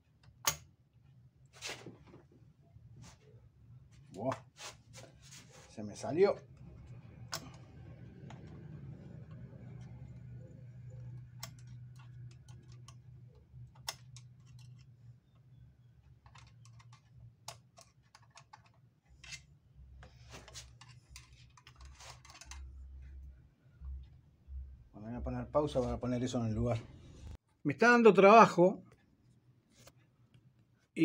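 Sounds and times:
small metallic clicks and taps: 10.9 - 15.5.

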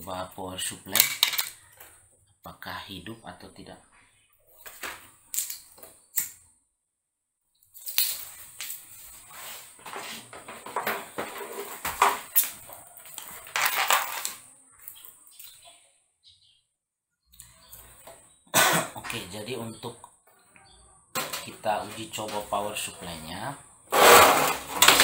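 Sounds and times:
small hard objects clattering: 0.9 - 2.0, 4.6 - 5.8, 7.7 - 15.6, 21.1 - 23.0, 23.9 - 25.0.

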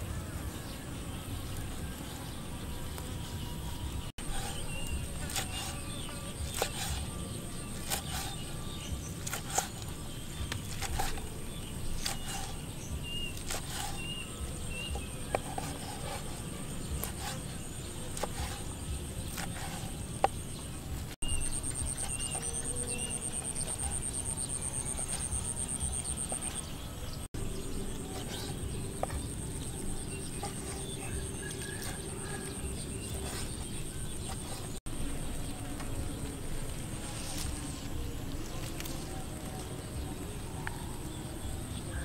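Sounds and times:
birds chirping: 0.0 - 42.0
insects buzzing drone: 0.0 - 42.0
knife chopping on wooden board: 6.5 - 7.0.

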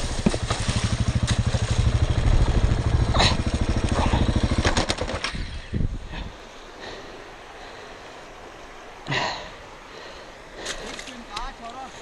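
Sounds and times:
motorcycle engine thumping: 0.0 - 5.4.

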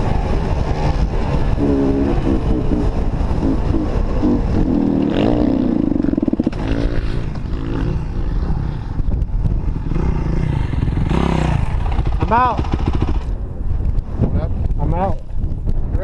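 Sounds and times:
dirt bike engine revving: 1.6 - 9.0, 9.6 - 13.3.

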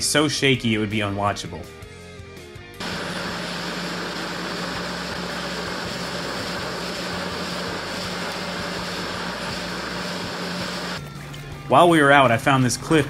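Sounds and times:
jet ski engine drone: 2.8 - 11.0.

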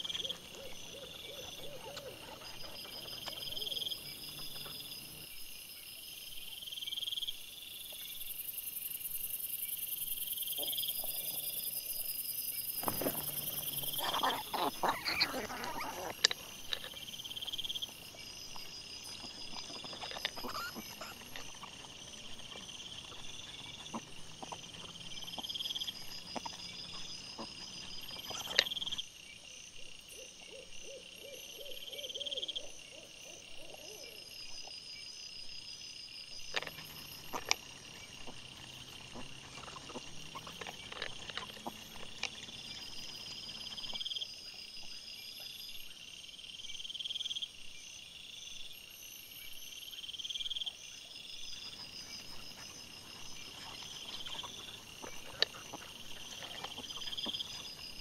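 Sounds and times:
night insects chirping: 0.0 - 58.0
wild boar rooting clicks and knocks: 12.7 - 29.0, 36.4 - 44.2, 51.8 - 58.0.

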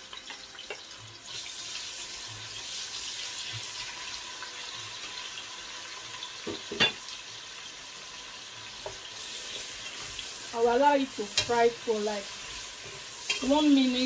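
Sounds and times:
onion sizzling in oil: 0.0 - 14.0.

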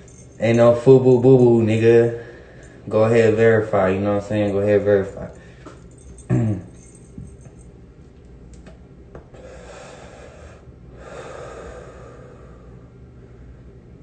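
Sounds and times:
person breathing noisily: 9.4 - 13.0.

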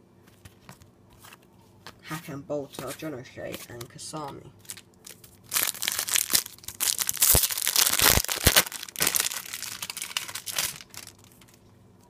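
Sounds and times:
foil pack crinkling and tearing: 4.6 - 11.6.

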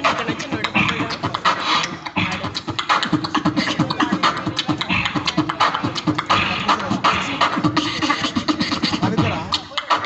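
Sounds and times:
person beatboxing into a microphone: 0.0 - 10.0.

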